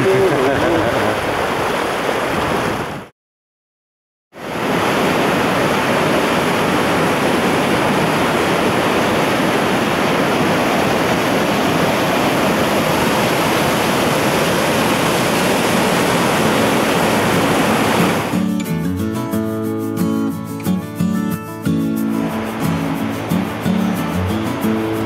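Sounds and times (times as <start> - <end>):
river rushing over rocks: 0.0 - 3.0, 4.4 - 18.5, 21.9 - 25.0.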